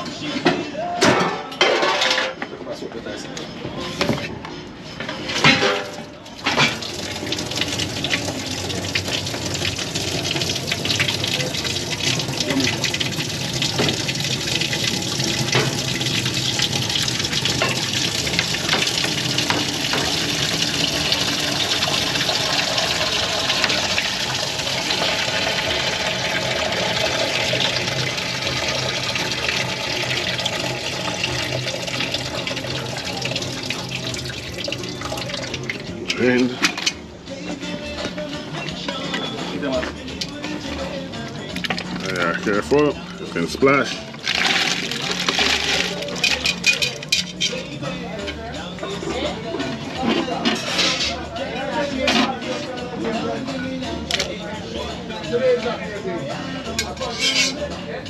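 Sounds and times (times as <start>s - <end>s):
rushing water: 6.4s - 35.8s.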